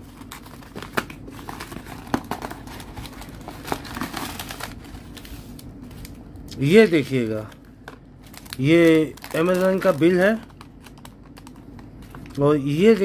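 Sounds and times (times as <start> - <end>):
cardboard rustling and crinkling: 0.0 - 6.2.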